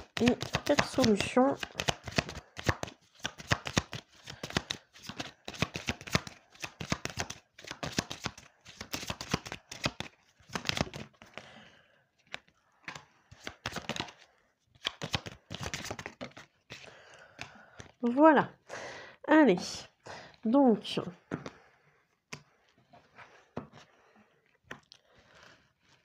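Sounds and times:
cards being shuffled: 0.0 - 11.4, 12.2 - 18.0.

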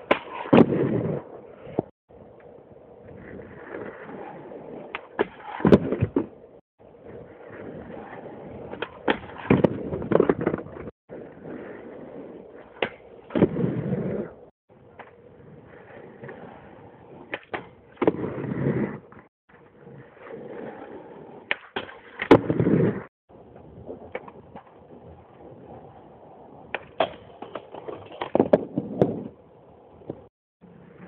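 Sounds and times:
skateboard wheels rolling on concrete: 0.0 - 31.0
skateboard clacking and impacts: 21.4 - 22.7, 26.7 - 29.3.

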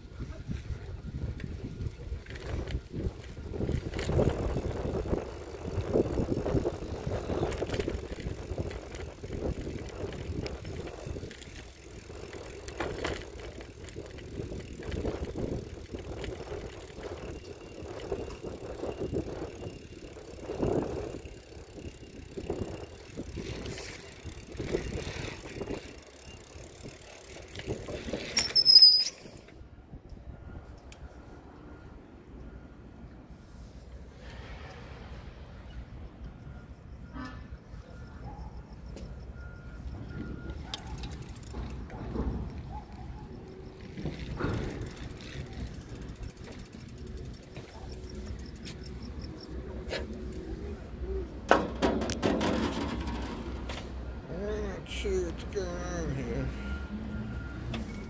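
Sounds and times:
bicycle rattling over pavement: 0.0 - 29.5, 39.6 - 58.0
bicycle brakes squealing: 4.2 - 29.5, 37.0 - 51.4.

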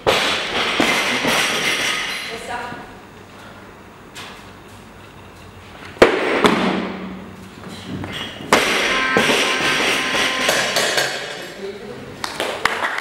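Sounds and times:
onlookers clapping and cheering: 12.2 - 13.0.

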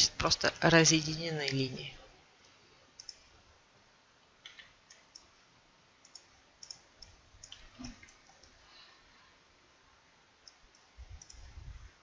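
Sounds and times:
computer mouse clicking: 2.4 - 3.3, 4.4 - 5.3, 6.0 - 8.6, 10.4 - 11.5.

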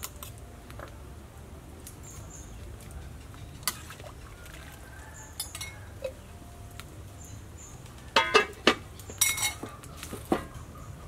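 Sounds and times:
ladle clinking against pot: 5.4 - 6.2, 8.2 - 9.8.

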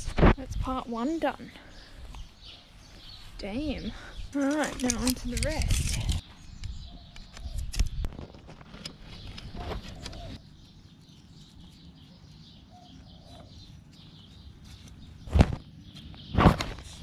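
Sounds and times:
faint bird calls: 9.2 - 16.8.

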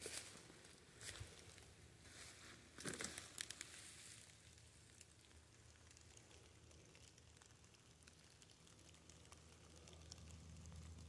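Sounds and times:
footsteps in wet leaves: 0.0 - 4.5
light rain on leaves: 1.0 - 11.0.

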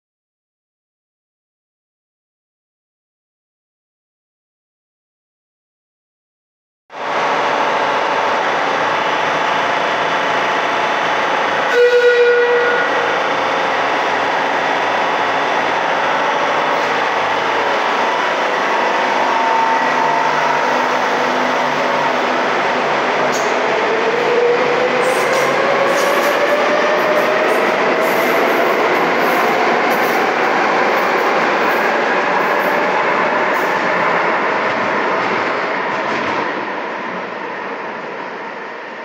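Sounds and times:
train horn note: 11.7 - 13.1.

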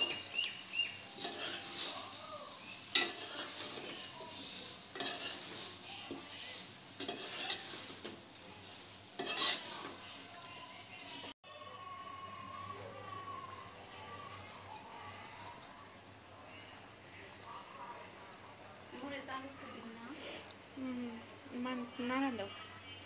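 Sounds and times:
masala sizzling: 0.0 - 23.0
metal spoon scraping metal pot: 1.0 - 6.2, 7.0 - 8.2, 9.2 - 10.0.

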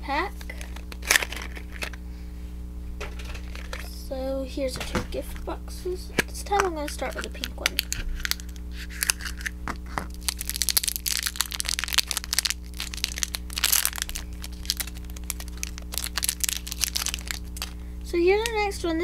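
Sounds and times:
plastic and card packaging crinkling: 0.3 - 2.0, 3.1 - 3.9, 6.2 - 17.8.

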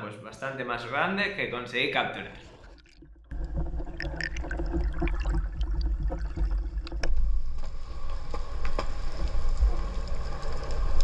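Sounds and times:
bubbling: 2.1 - 8.1
underwater rumble: 2.4 - 11.0
sharp clicks and crackles: 2.7 - 11.0.

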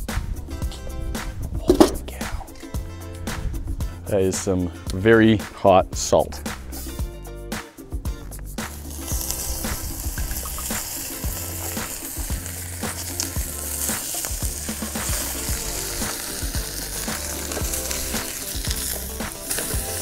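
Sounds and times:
pops and crackles: 8.2 - 20.0
steak sizzling in a pan: 8.2 - 20.0.

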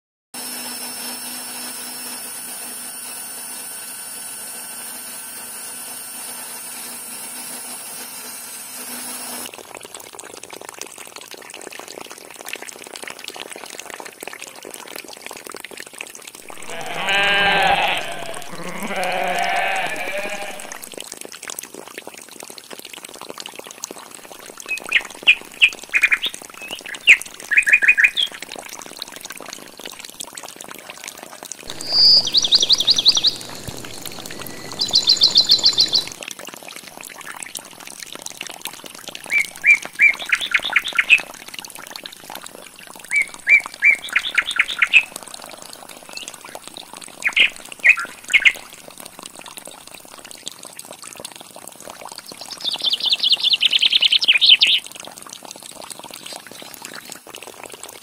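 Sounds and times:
running water: 0.4 - 58.0
bleats: 16.5 - 21.0
short bird chirps: 31.7 - 36.2
steady hum: 31.7 - 36.2.

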